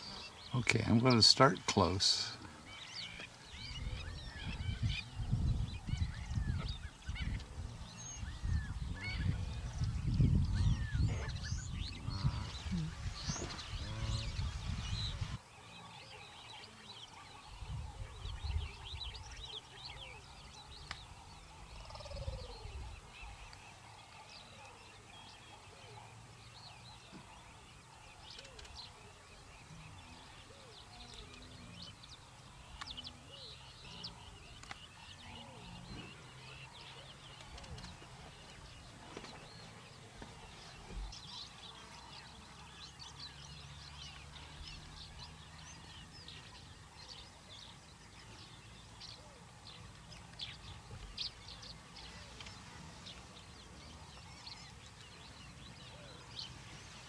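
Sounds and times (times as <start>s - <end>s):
birds chirping: 0.0s - 57.0s.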